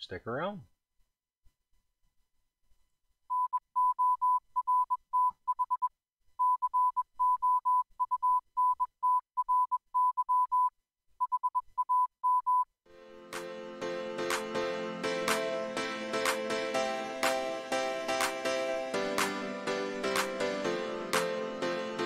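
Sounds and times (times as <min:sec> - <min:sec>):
morse code beeps: 0:06.4 - 0:12.6
music: 0:12.9 - 0:22.0.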